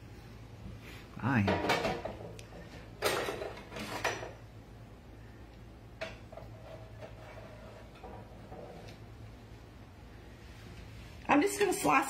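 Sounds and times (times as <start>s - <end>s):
pan and utensil scraping: 6.3s - 8.8s.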